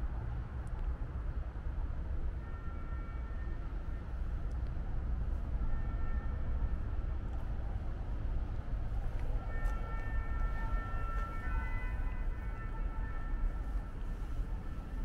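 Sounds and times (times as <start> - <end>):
low city rumble: 0.0 - 15.0.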